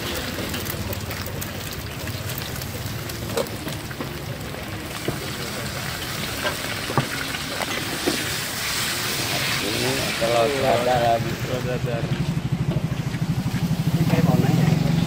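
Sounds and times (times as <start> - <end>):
egg sizzling in a wok: 0.0 - 11.6.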